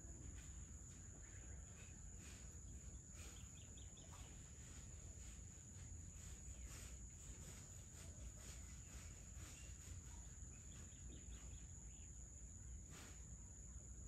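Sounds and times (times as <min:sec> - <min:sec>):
insects droning: 0:00.0 - 0:14.0
bird chirps: 0:00.3 - 0:05.4, 0:06.2 - 0:12.2.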